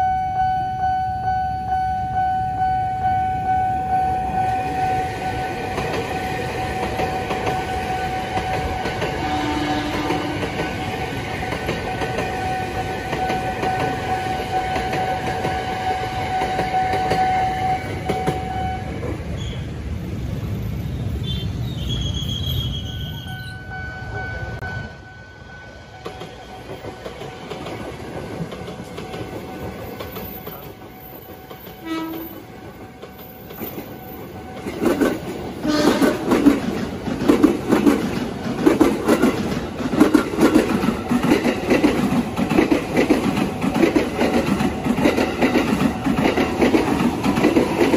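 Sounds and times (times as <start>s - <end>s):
electric train high tone: 0.0s - 19.8s, 20.4s - 36.4s
train wheel clatter: 4.7s - 19.6s, 26.0s - 47.9s
train horn blast: 7.5s - 11.0s, 12.4s - 19.6s, 31.8s - 32.4s, 35.6s - 36.4s.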